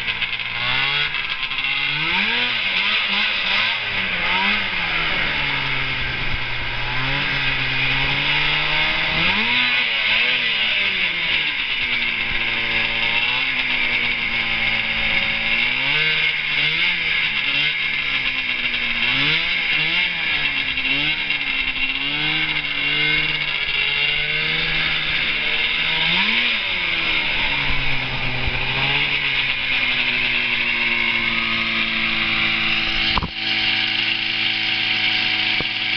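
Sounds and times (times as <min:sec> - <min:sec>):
engine idling: 0:00.0 - 0:35.9
two-stroke engine revving: 0:00.0 - 0:35.9.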